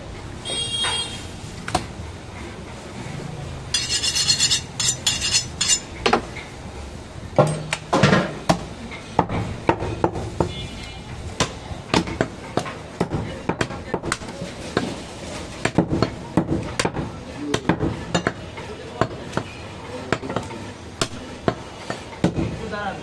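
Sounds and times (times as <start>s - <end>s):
metallic clinking and clatter: 3.7s - 5.9s.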